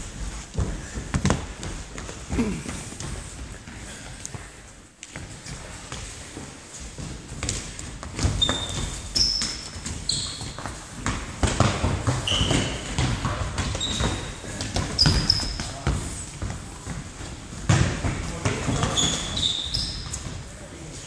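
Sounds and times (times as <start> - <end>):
ball being kicked and bouncing: 7.0 - 19.2
trainers squeaking on wooden floor: 8.1 - 17.4, 18.3 - 20.5.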